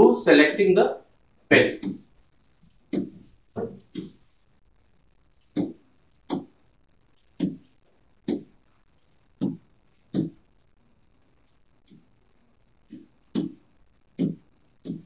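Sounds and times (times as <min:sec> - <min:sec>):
stylus tapping on glass screen: 0:05.6 - 0:06.6.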